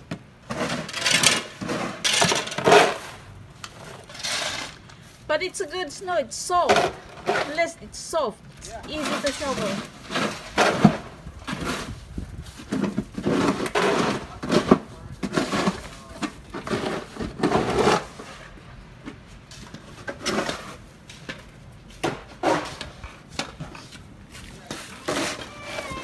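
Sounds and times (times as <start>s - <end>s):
snow shovels scraping concrete: 0.4s - 26.0s.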